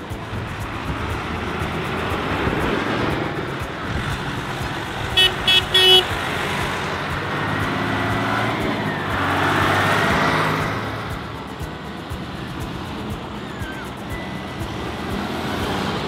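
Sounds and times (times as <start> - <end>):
tractor engines passing: 0.0 - 16.0
horn toots: 3.9 - 10.7.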